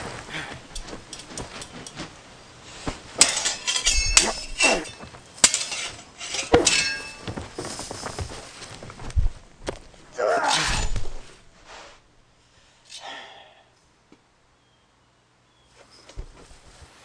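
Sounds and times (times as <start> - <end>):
swords clashing: 3.2 - 7.3, 10.3 - 11.2.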